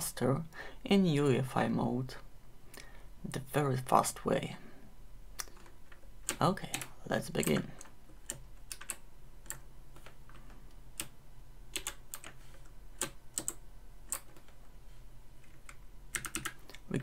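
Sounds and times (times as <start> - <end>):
faint low hum: 0.0 - 17.0
keyboard keystrokes clicking: 5.5 - 10.4, 11.0 - 12.4, 13.0 - 14.6, 15.5 - 16.8.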